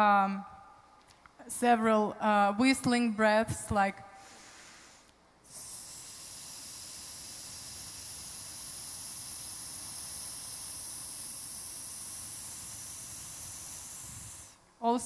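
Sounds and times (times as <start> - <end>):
woman's whistling breath: 4.2 - 14.6.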